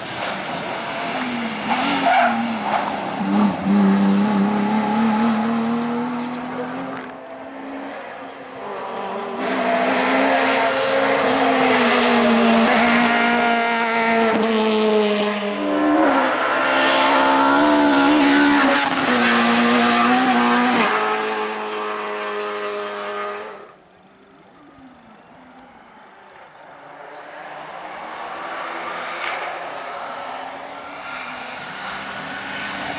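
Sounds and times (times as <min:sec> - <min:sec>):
rally car engines at high revs: 0:00.0 - 0:23.8, 0:26.9 - 0:32.9.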